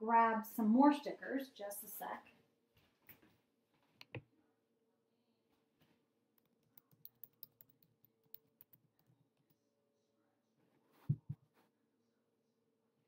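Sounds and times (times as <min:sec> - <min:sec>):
light clicks and taps: 0:06.4 - 0:09.1.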